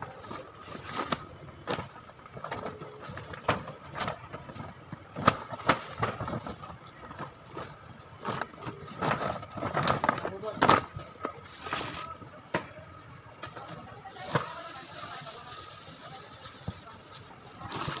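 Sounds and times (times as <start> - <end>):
plastic bag rustling and crinkling: 5.2 - 12.2, 14.0 - 18.0.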